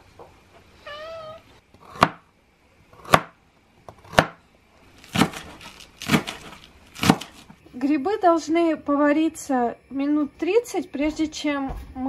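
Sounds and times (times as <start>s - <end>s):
cat meowing: 0.8s - 1.5s
knife chopping carrot on plastic board: 1.8s - 2.3s, 3.0s - 4.4s, 5.1s - 7.4s.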